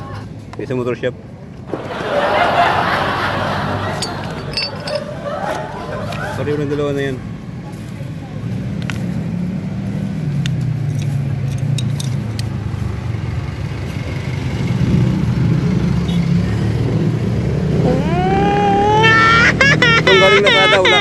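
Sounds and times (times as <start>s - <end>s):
vehicle engine rumbling: 2.2s - 21.0s
rising pitched tone: 17.7s - 21.0s.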